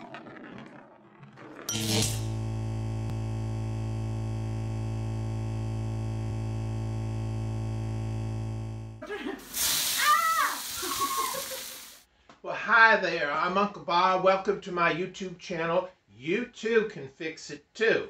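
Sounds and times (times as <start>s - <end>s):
electronic drone: 0.2s - 9.0s.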